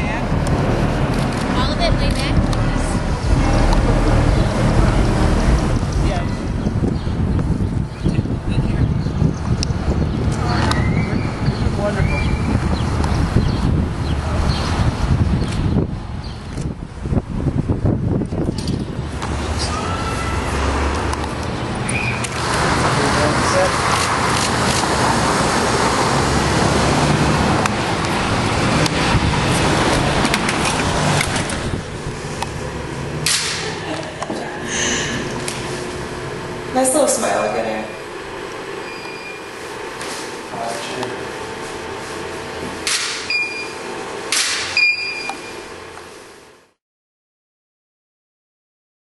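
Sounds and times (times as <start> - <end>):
city traffic rush: 0.0 - 44.8, 45.6 - 46.6
high ready beep: 38.8 - 39.5, 43.3 - 43.8, 44.8 - 45.6.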